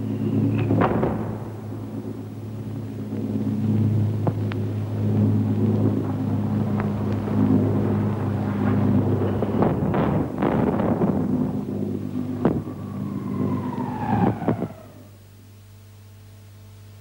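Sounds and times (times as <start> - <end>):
low droning hum: 0.0 - 17.0
sharp cracks: 0.4 - 15.2.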